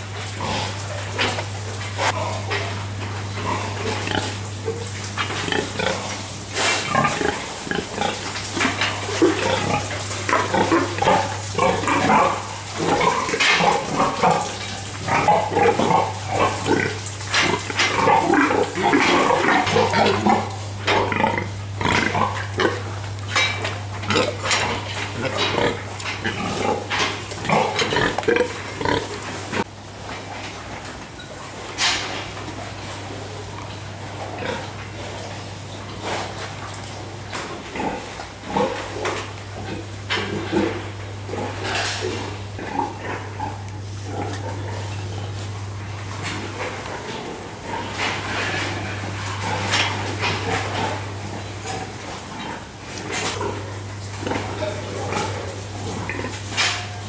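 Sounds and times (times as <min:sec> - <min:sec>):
pigs grunting: 0:00.0 - 0:29.7, 0:31.2 - 0:57.0
steady low hum: 0:00.0 - 0:57.0.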